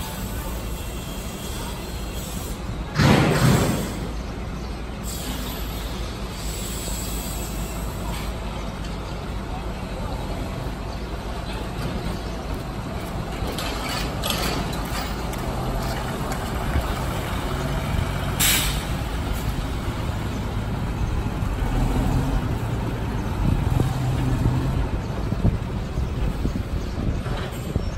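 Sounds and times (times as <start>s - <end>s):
air brake hiss: 0.0s - 2.7s, 5.0s - 8.1s, 18.4s - 19.0s
truck diesel engine: 0.0s - 27.9s.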